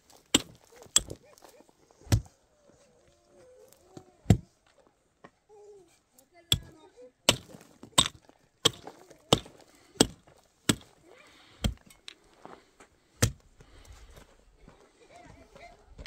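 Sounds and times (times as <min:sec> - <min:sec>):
pickaxe striking stony soil: 0:00.1 - 0:02.3, 0:06.5 - 0:06.7, 0:07.3 - 0:11.0, 0:11.6 - 0:12.2, 0:13.2 - 0:13.4.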